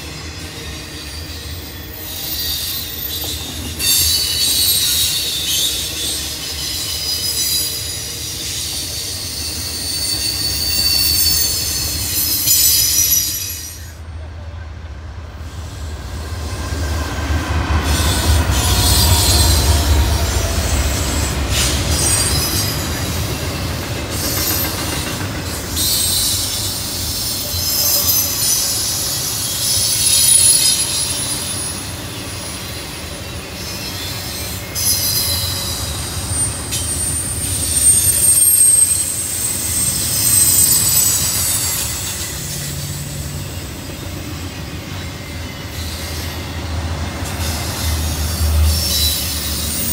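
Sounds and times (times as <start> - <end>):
low train rumble: 0.0 - 49.9
train wheels squealing on rails: 0.0 - 49.9
wheels clacking over rail joints: 17.8 - 32.1.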